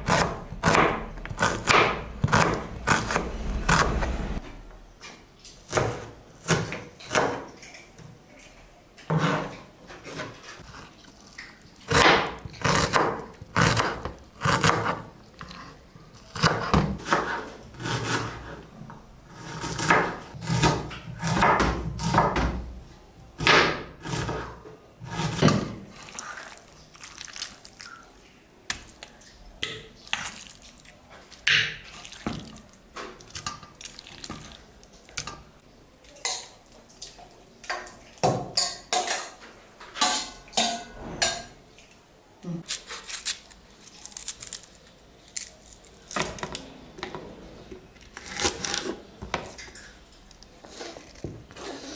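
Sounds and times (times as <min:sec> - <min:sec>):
knife chopping on cutting board: 0:00.0 - 0:03.9.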